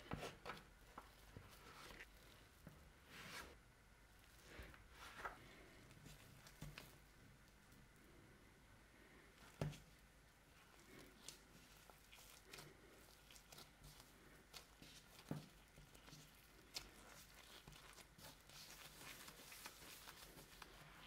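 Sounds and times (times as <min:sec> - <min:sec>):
hands rustling: 0:10.8 - 0:21.0.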